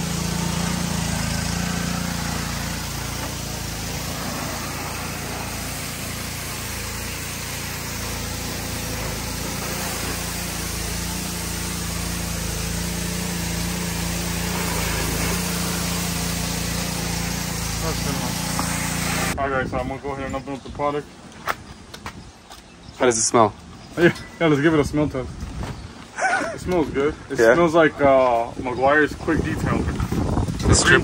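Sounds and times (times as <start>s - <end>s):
pressure washer motor hum: 0.0s - 19.4s
water spray hissing: 0.0s - 19.4s.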